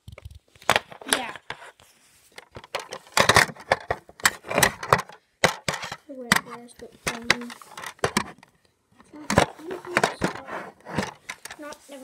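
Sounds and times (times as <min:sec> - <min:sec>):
phone handling knocks and rubbing: 0:02.4 - 0:08.5, 0:09.2 - 0:11.6.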